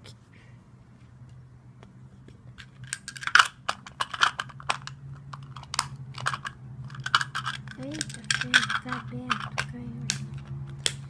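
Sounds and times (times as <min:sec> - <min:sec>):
faint steady hum: 0:00.0 - 0:11.0
plastic pieces clicking and rattling: 0:02.6 - 0:11.0.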